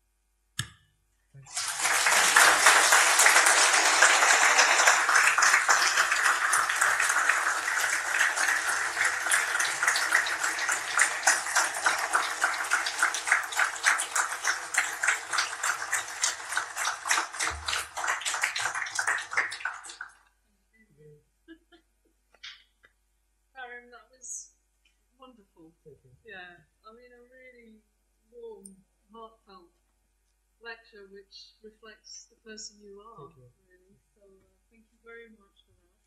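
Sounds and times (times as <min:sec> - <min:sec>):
audience applauding: 0:01.5 - 0:20.2.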